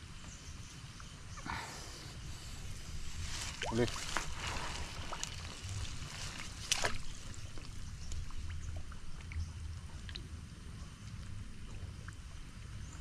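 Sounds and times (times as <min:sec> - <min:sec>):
low steady rumble: 0:00.0 - 0:13.0
water sloshing and splashing: 0:02.7 - 0:10.4.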